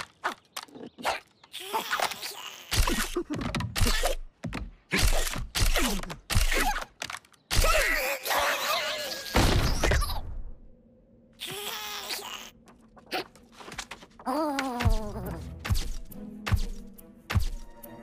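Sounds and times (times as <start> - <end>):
cartoon character grunts and squeals: 7.5 - 10.2.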